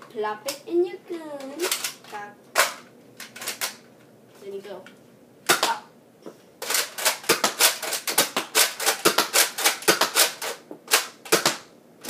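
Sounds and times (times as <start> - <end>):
toy dart blaster clacks: 6.6 - 11.7.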